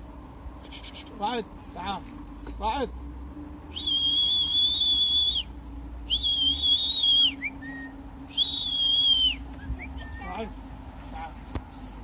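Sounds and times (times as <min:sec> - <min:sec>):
long high whistles: 0:03.7 - 0:10.3.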